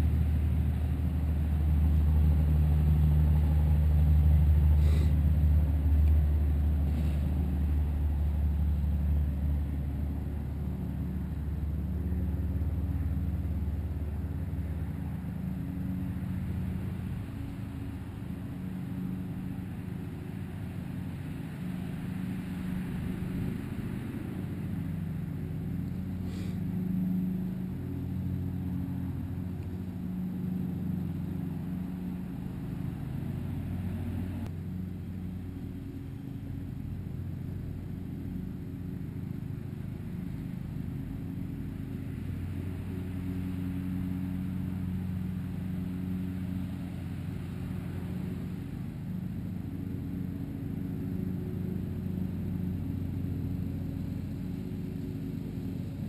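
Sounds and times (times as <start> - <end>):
engine humming: 0.0 - 56.0.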